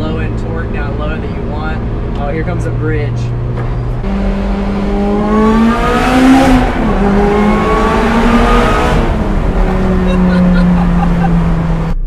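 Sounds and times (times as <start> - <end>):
supercharged car engine accelerating: 0.0 - 12.0.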